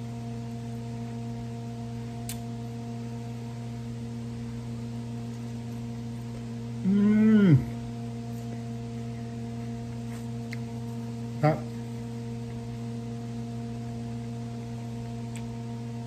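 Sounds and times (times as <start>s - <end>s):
low electrical hum: 0.0s - 16.0s
person humming while eating: 6.7s - 9.3s.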